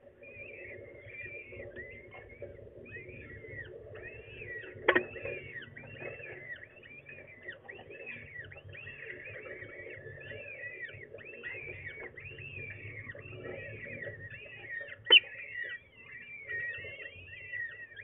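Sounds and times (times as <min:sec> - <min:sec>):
falcon chicks begging peeps: 0:10.2 - 0:17.8.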